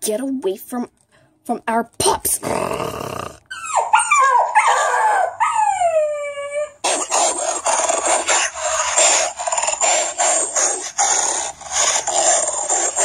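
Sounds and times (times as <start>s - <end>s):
dog snarling and growling: 2.3s - 3.6s, 6.8s - 13.0s
dog whining: 3.4s - 13.0s.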